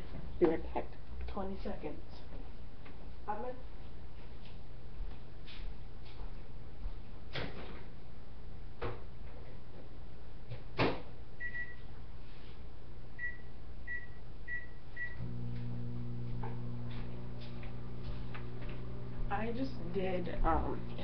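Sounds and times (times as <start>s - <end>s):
microwave humming: 13.1s - 21.0s.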